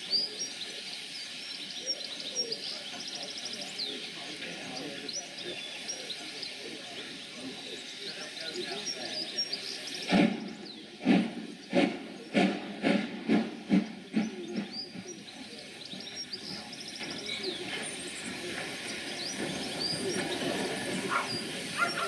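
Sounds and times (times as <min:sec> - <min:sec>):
steam hissing: 0:00.0 - 0:22.0
steam locomotive exhaust beats: 0:00.0 - 0:22.0.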